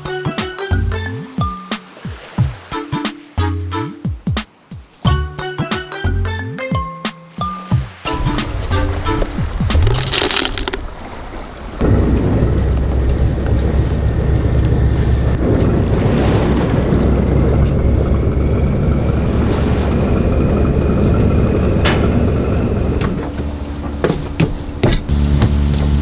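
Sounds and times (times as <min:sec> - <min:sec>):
boat engine rumbling: 0:07.6 - 0:26.0
wind buffeting microphone: 0:08.1 - 0:10.0, 0:10.7 - 0:26.0
sharp knocks: 0:23.0 - 0:25.6.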